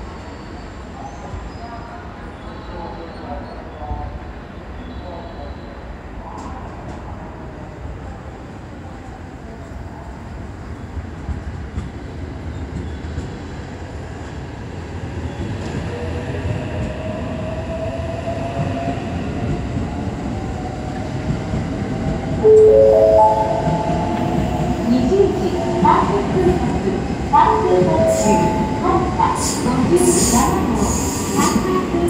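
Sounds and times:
electric train accelerating past: 15.4s - 32.0s.

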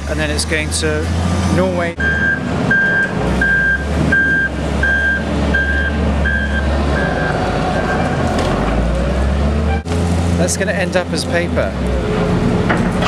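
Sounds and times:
diesel engine running: 0.0s - 13.0s
reversing alarm beeping: 2.0s - 8.4s.

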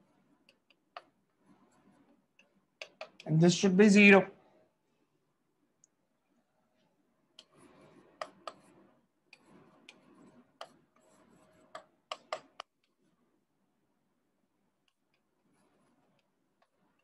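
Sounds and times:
pen scratching on screen: 0.0s - 3.2s, 7.4s - 13.2s, 14.9s - 17.0s
pen tapping on screen: 2.4s - 3.3s, 8.2s - 8.7s, 11.6s - 12.7s.

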